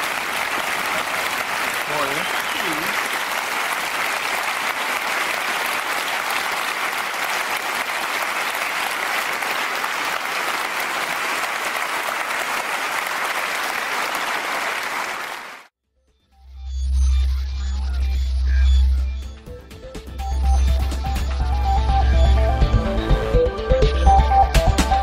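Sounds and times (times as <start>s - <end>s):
audience applauding: 0.0s - 15.7s.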